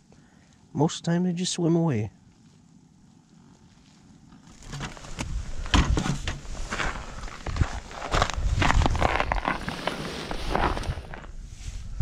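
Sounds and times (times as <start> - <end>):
footsteps crunching on snow: 3.5 - 12.0.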